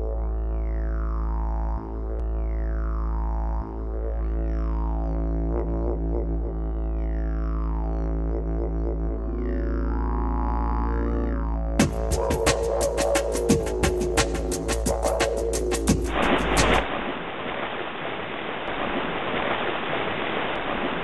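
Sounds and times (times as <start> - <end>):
deep steady drone music: 0.0 - 16.8
falling pitch sweep: 8.1 - 17.2.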